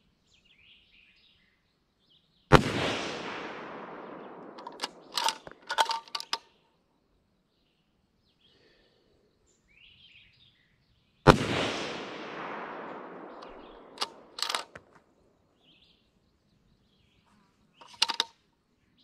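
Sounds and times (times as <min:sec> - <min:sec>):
rifle shot with echo: 0:02.5 - 0:06.4, 0:11.3 - 0:14.9
rifle bolt metallic clicks: 0:04.2 - 0:06.4, 0:12.4 - 0:14.9, 0:17.8 - 0:18.3.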